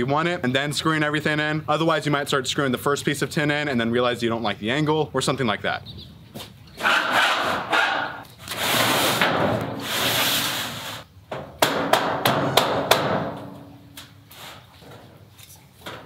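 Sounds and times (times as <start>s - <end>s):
tin roofing sheet scraping on wood: 8.4s - 11.0s.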